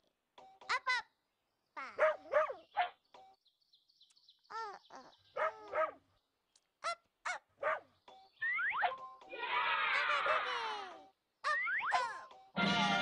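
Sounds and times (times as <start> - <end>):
cartoon puppy barking: 1.8 - 3.0, 4.6 - 6.0, 6.8 - 7.9, 8.7 - 12.3.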